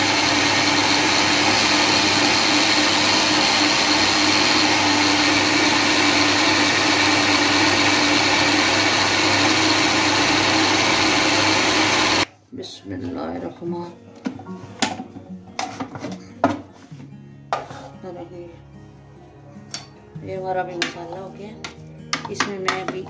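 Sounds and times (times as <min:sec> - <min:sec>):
food processor motor whirring: 0:00.0 - 0:12.3.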